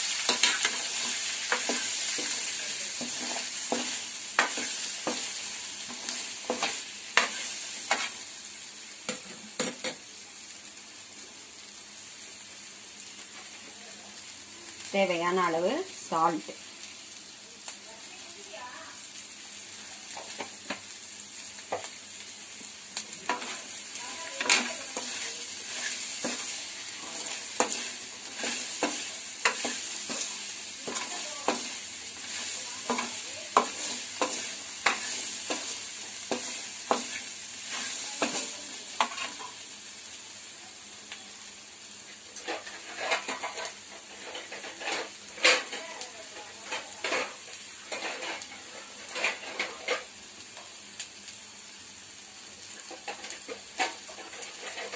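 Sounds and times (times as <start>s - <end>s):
hot oil sizzling: 0.0s - 54.9s
spoon scraping and knocking pan: 0.2s - 8.2s, 23.3s - 23.6s, 24.3s - 39.6s, 42.4s - 45.8s, 46.4s - 50.1s, 52.9s - 54.9s.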